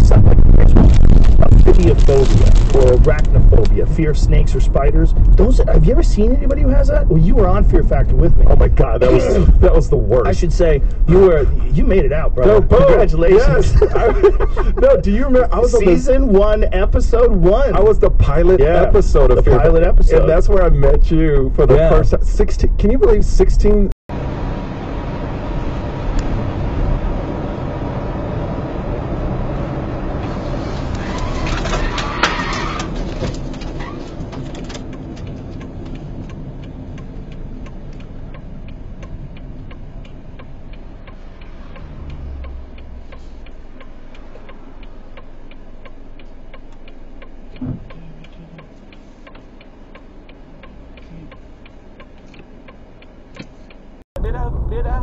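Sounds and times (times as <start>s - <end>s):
rush of noise: 0.0s - 20.4s, 54.2s - 55.0s
car engine and tyre noise: 0.0s - 55.0s.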